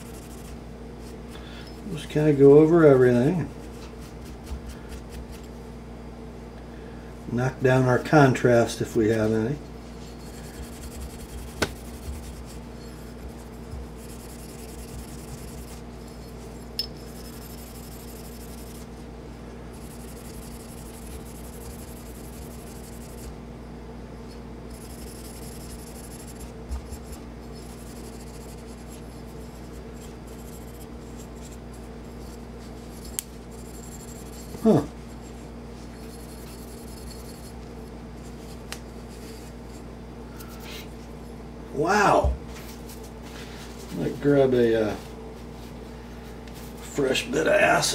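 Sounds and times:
steel wool scratching metal: 10.0s - 18.9s, 19.8s - 23.3s, 35.9s - 37.6s.

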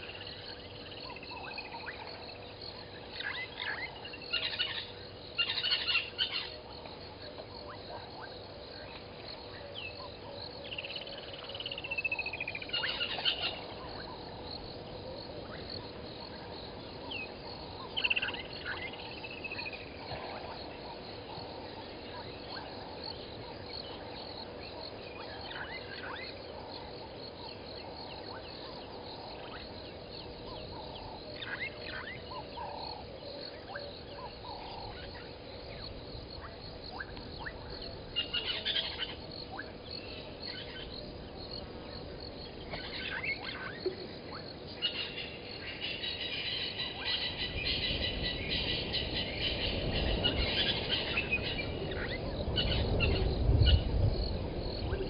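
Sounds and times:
bird calls: 0.0s - 6.6s, 8.9s - 14.3s, 27.4s - 41.0s, 42.4s - 53.8s
insects and frogs chorus: 0.0s - 55.0s.

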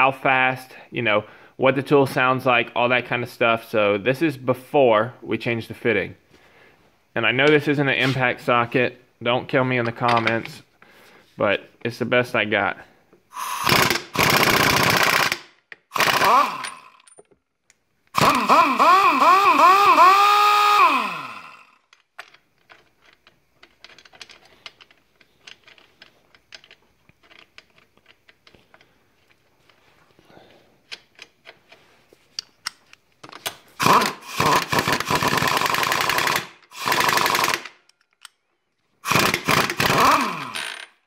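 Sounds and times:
air impact wrench hammering: 13.3s - 17.0s, 18.2s - 21.7s, 33.8s - 37.8s, 39.0s - 40.9s.

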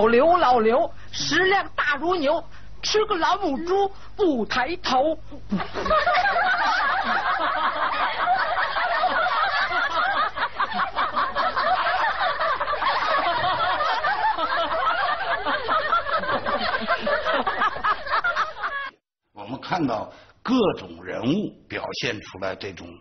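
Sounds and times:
women and girls laughing: 5.5s - 18.9s.

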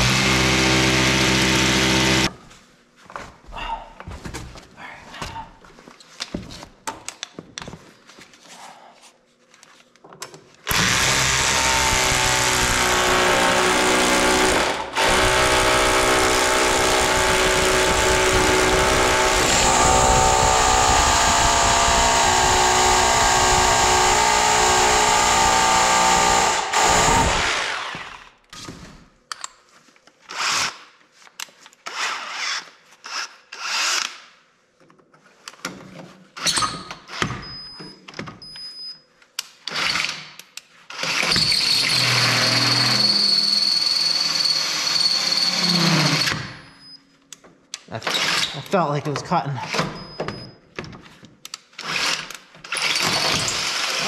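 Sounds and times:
drill boring through steel: 0.0s - 2.3s, 10.7s - 28.3s, 41.0s - 46.6s, 51.8s - 54.0s.

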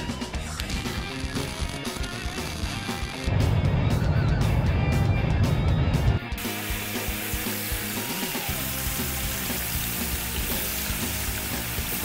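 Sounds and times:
background music: 0.0s - 12.0s
steady hiss: 6.4s - 12.0s.

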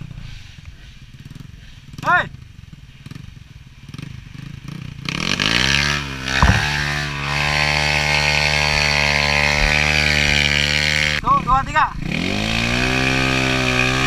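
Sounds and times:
dirt bike engine revving: 5.1s - 11.2s
sharp knock: 6.4s - 7.0s.

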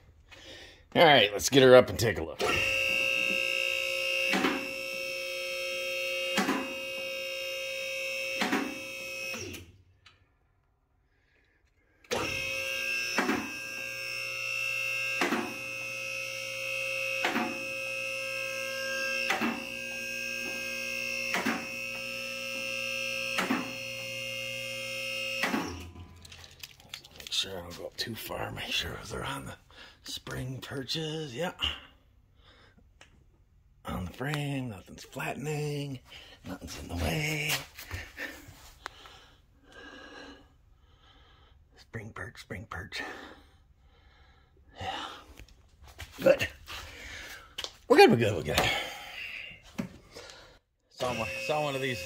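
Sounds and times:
hydraulic pump motor running: 2.4s - 9.7s, 12.0s - 27.3s, 51.0s - 52.0s.

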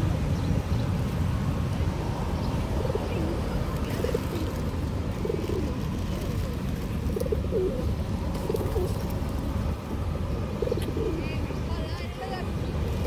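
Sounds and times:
pigeons cooing: 2.6s - 9.2s, 10.3s - 11.6s.

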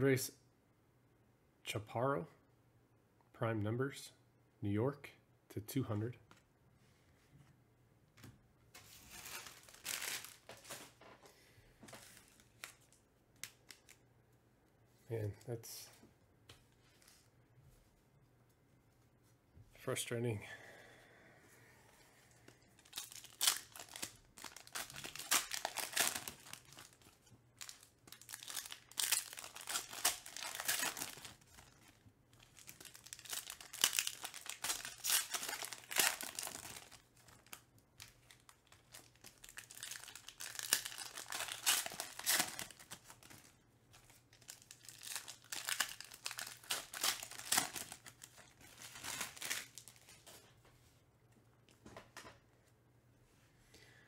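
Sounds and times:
foil wrappers tearing and crinkling: 9.1s - 10.8s, 22.8s - 50.1s.

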